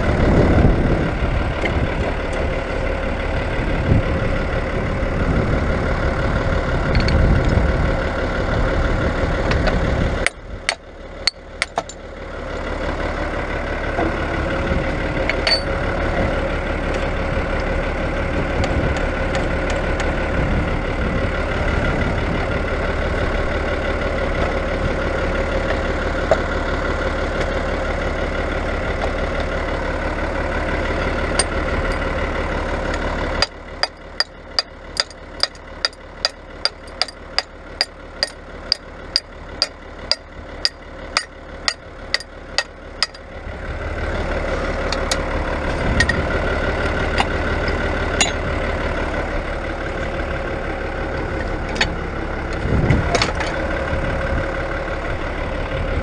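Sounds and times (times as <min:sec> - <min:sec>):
tractor engine idling: 0:00.0 - 0:56.0
sharp metallic clicks: 0:32.9 - 0:43.2.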